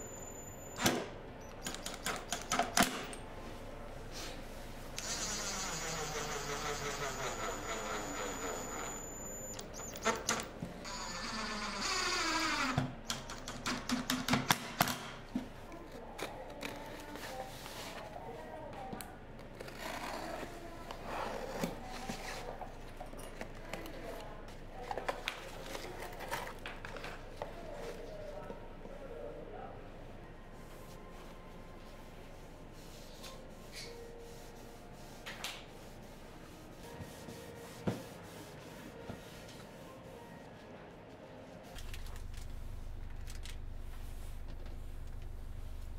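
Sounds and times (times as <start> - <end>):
drill motor whine: 10.9 - 12.8
cloth rubbing on wood: 35.8 - 39.9.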